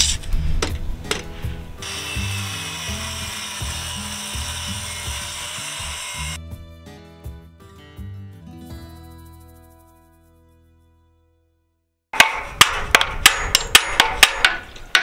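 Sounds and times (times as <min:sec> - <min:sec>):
background music: 0:00.1 - 0:11.4
circular saw cutting: 0:01.8 - 0:06.4.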